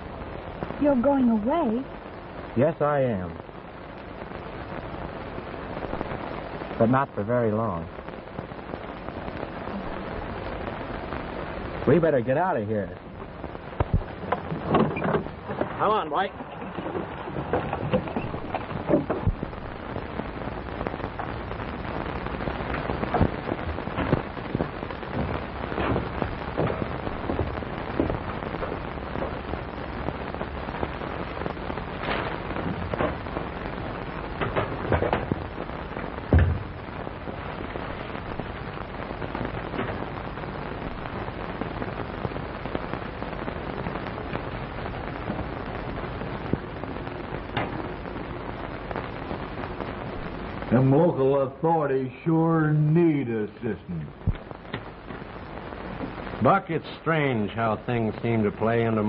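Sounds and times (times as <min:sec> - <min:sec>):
film soundtrack hiss and crackle: 0:00.0 - 0:59.0
irregular pops: 0:07.8 - 0:12.3, 0:12.9 - 0:51.0, 0:54.0 - 0:58.9
loud thump: 0:13.8 - 0:15.8, 0:34.4 - 0:35.4, 0:36.3 - 0:36.8.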